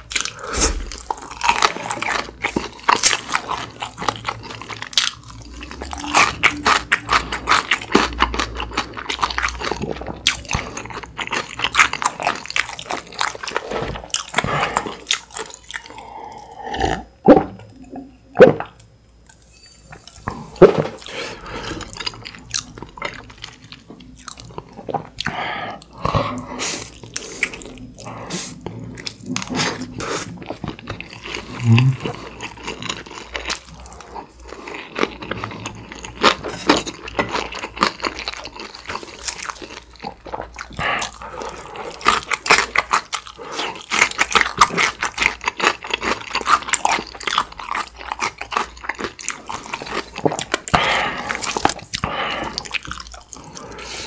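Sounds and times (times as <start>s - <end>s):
chewing and crunching food: 0.0s - 54.0s.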